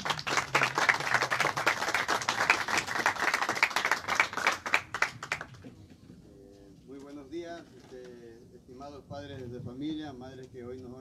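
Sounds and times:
small group clapping: 0.0s - 6.0s.

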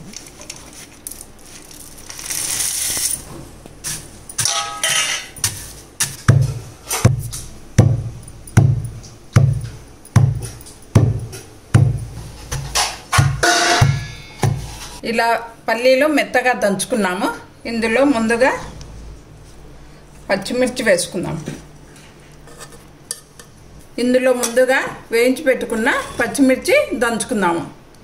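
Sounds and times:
peanuts rustling into mortar: 0.0s - 3.3s
pestle pounding in mortar: 5.4s - 14.7s.

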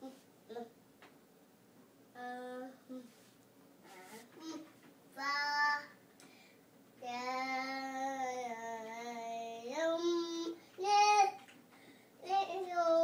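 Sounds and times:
toddler singing: 3.9s - 6.0s, 7.0s - 11.5s, 12.2s - 13.0s.

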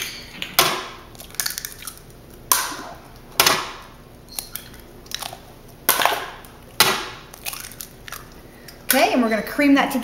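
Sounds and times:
eggshells cracking on hard edge: 0.6s - 2.8s.

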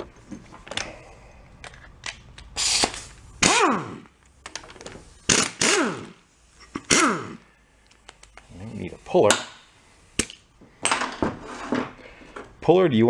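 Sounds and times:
pneumatic impact wrench hammering: 2.6s - 4.1s, 5.2s - 7.4s.

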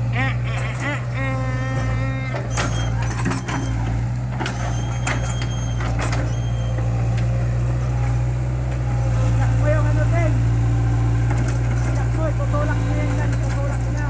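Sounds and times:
heavy equipment engine running: 0.0s - 14.0s
knocks and rattles: 0.5s - 8.2s, 11.3s - 12.3s, 13.0s - 14.0s.

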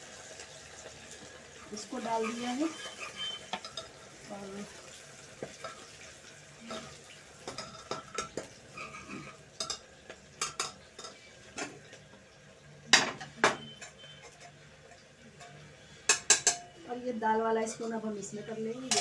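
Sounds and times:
onion sizzling in oil: 0.0s - 19.0s
spoon scraping metal pot: 2.0s - 4.0s.

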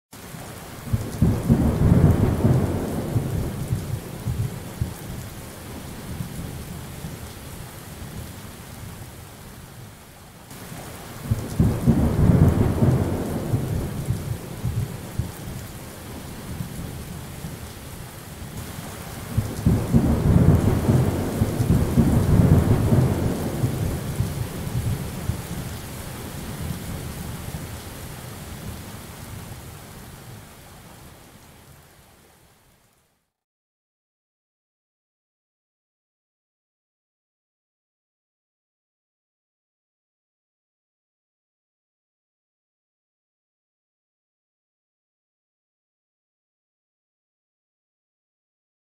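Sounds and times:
steady rain: 0.2s - 33.4s
rolling thunder: 0.9s - 5.0s, 11.2s - 15.4s, 19.2s - 25.8s.

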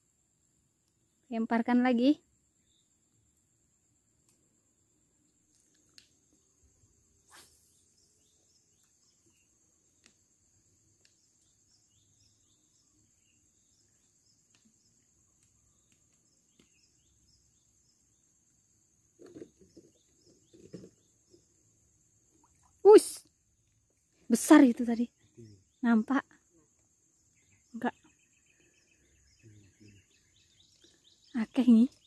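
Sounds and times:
high insect drone: 1.1s - 23.6s, 24.2s - 32.0s
faint bird chirps: 5.6s - 18.3s, 24.2s - 32.0s.

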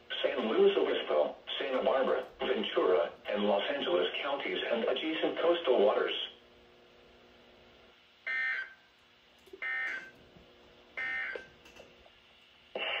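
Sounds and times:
faint hum: 0.0s - 13.0s.

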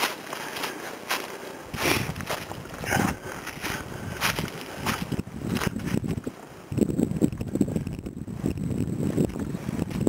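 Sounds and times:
footsteps crunching dry leaves: 0.0s - 6.2s.

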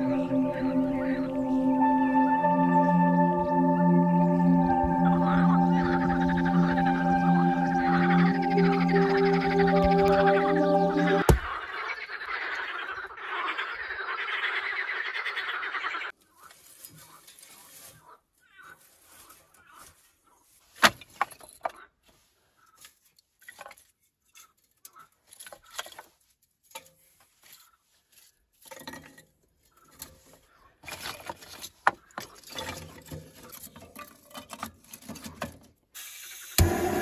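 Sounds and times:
kindling rustling and clattering: 16.4s - 18.1s, 18.8s - 22.2s, 22.8s - 35.8s.

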